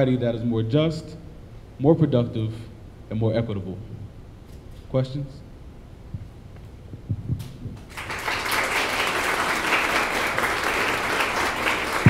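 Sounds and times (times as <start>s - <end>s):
audience applauding: 7.9s - 12.0s.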